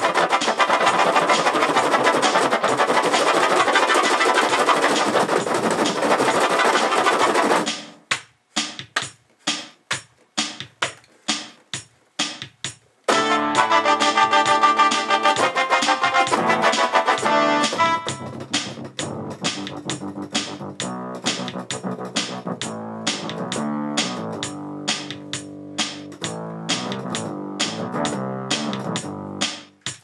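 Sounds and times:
electronic keyboard playing: 0.0s - 5.1s, 13.1s - 29.5s.

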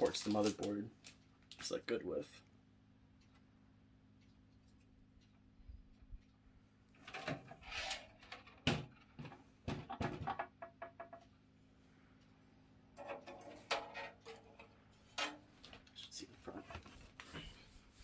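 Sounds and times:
faint low hum: 0.0s - 10.2s
metal computer case knocking: 8.6s - 11.2s.

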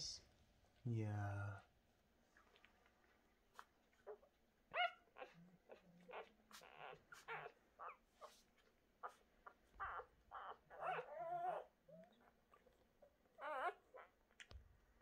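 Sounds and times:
puppies squeaking and whimpering: 3.6s - 14.4s.

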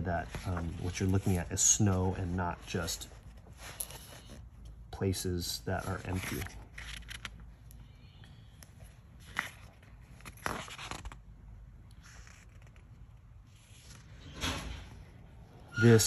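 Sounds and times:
book page turning: 0.1s - 4.5s, 5.7s - 7.7s, 8.6s - 11.3s, 11.9s - 14.3s.

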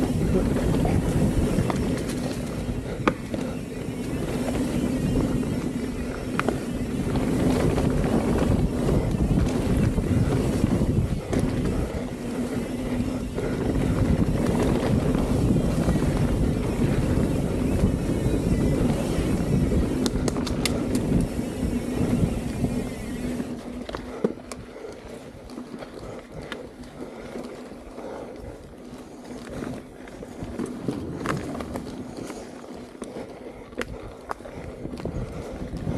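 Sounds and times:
wind rushing over camera: 0.0s - 27.3s, 33.2s - 35.9s
bike rattling over bumps: 0.0s - 35.9s
bike tyres rolling on dirt: 0.0s - 35.9s
sharp ticks: 18.8s - 21.3s.

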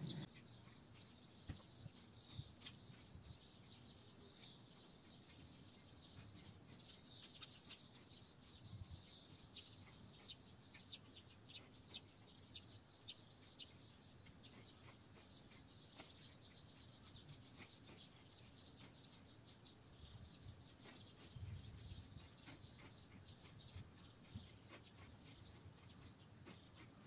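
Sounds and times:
birds and insects chirping: 0.0s - 27.0s.

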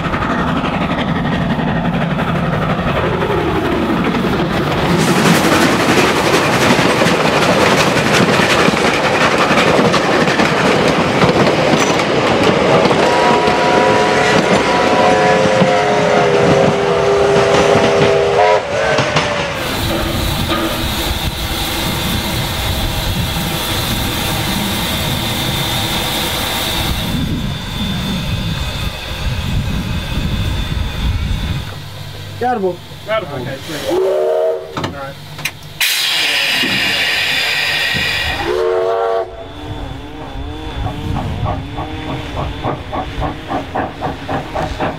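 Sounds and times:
steam locomotive running: 0.0s - 44.9s
steam whistle: 13.0s - 28.2s, 33.8s - 34.8s, 35.8s - 43.6s
thin high whine: 19.6s - 43.8s.

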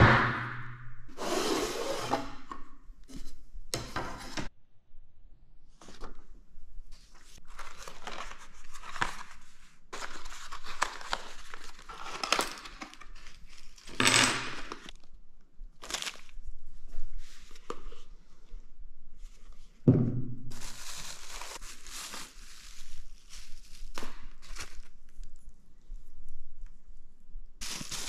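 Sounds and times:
paper packaging rustling: 7.2s - 14.0s, 15.8s - 16.4s, 20.5s - 25.4s, 27.6s - 28.0s.

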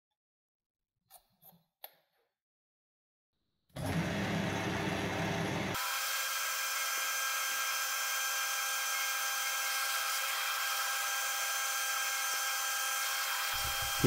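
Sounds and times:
milling machine whine: 13.0s - 14.0s.

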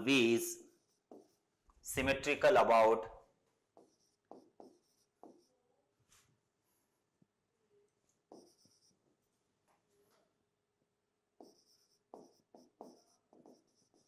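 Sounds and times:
pen strokes on a board: 0.6s - 1.6s, 3.7s - 5.6s, 8.3s - 9.0s, 11.4s - 14.0s.

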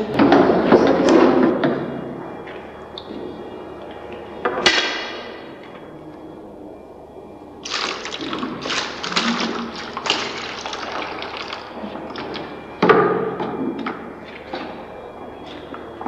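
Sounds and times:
liquid splashing into bucket: 7.6s - 12.5s
liquid glugging from jug: 7.6s - 12.6s.

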